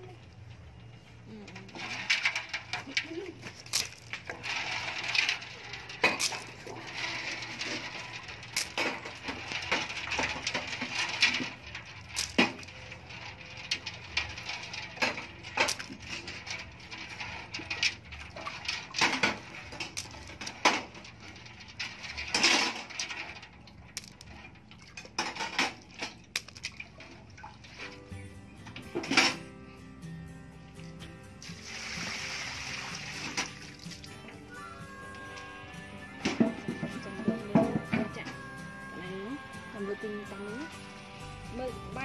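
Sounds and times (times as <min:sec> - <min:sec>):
clam shells clicking together: 0:26.3 - 0:26.8.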